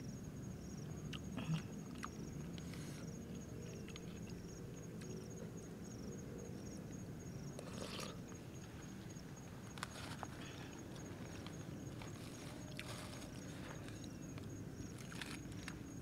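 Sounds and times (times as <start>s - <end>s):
insect chirping: 0.0s - 16.0s
chewing noises: 1.1s - 5.2s, 7.6s - 8.2s, 9.7s - 15.9s.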